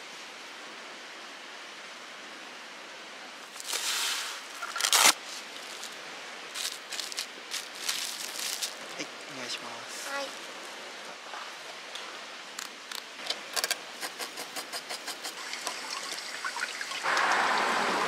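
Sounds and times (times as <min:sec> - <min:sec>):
rush of water: 0:00.0 - 0:13.2, 0:13.8 - 0:18.0
falling water hissing: 0:03.4 - 0:06.7, 0:13.9 - 0:18.0.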